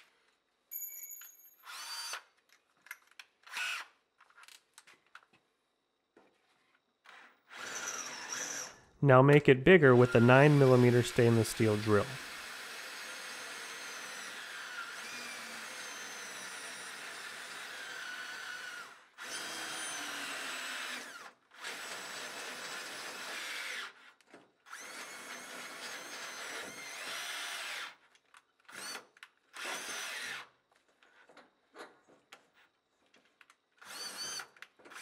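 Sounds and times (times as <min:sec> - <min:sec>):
cordless drill drilling through metal: 0:01.6 - 0:02.3, 0:03.4 - 0:04.0, 0:06.6 - 0:08.8, 0:09.9 - 0:30.6, 0:33.8 - 0:35.0.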